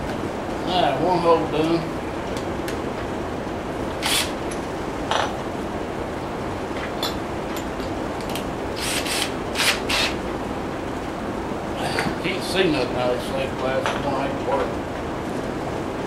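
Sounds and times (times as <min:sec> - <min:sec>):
cordless drill rubbing and rasping: 0:04.0 - 0:04.4, 0:08.8 - 0:10.2.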